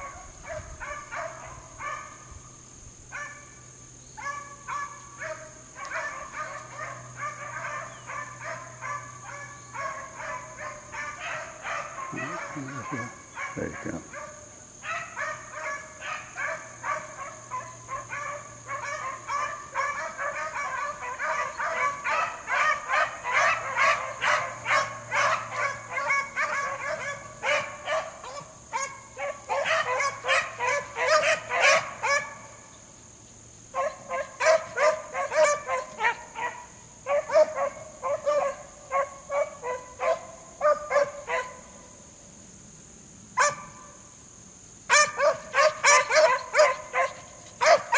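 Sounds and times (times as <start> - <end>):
beagles baying: 4.2 - 32.5, 33.8 - 41.6, 44.9 - 47.9.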